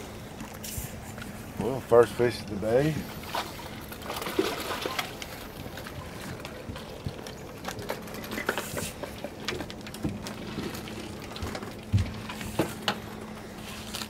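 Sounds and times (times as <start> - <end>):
faint steady hum: 0.0 - 14.0
water dripping and splashing: 3.2 - 7.8.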